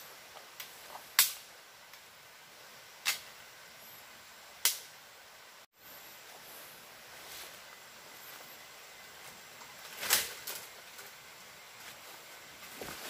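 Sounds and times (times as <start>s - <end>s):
forest ambience hiss: 0.0s - 13.0s.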